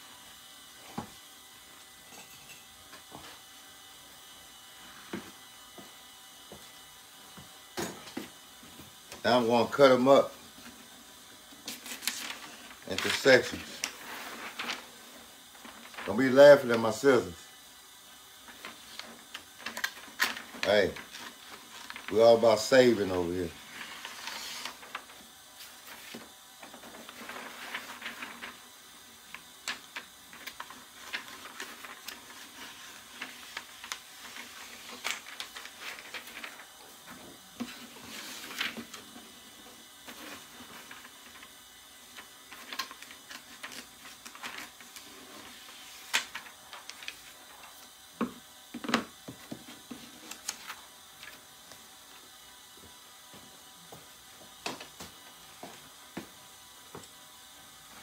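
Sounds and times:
plastic film crinkling: 23.6s - 28.6s, 29.6s - 36.9s.

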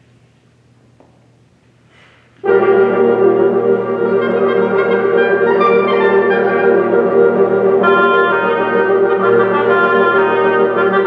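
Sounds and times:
wind ensemble playing chords: 2.4s - 11.0s.

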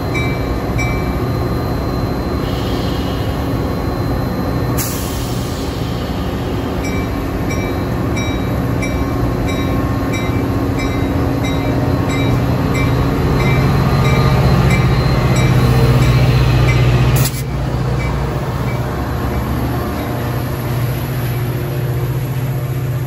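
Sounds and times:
diesel locomotive engine drone: 0.0s - 23.0s.

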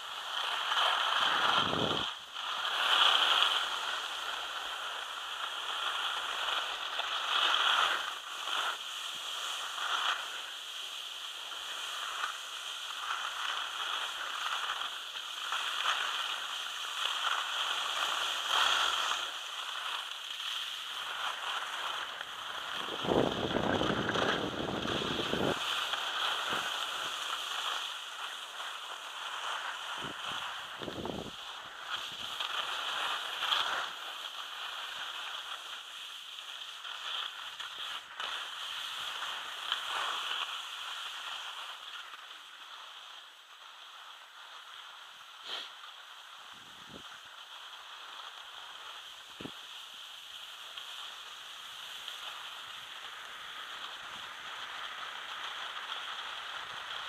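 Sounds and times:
skis scraping over snow: 0.0s - 57.0s
wind buffeting microphone: 22.8s - 25.7s, 30.8s - 31.4s.

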